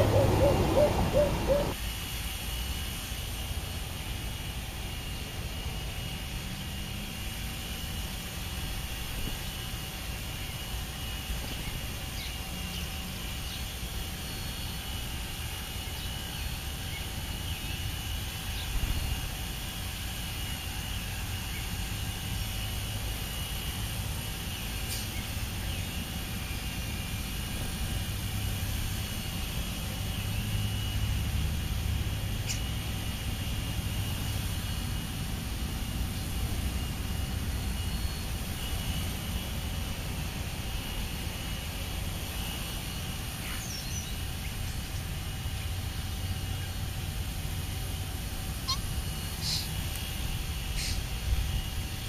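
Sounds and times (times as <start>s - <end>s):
low outdoor rumble: 0.0s - 1.8s.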